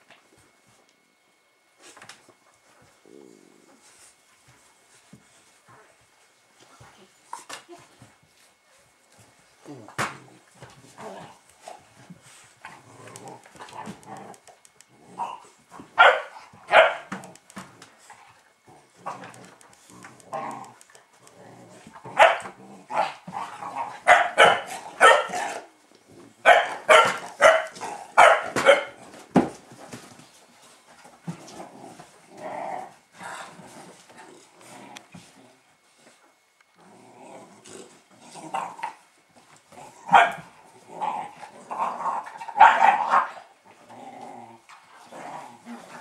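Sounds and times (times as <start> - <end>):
puppies barking: 16.0 - 17.2, 24.0 - 25.6, 26.4 - 29.0, 42.6 - 43.3.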